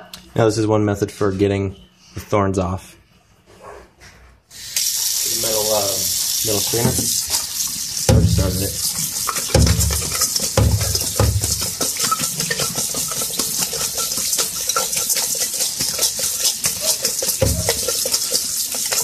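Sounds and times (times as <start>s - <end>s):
tap water pouring: 4.7s - 19.0s
metal strainer rattling in sink: 8.0s - 19.0s.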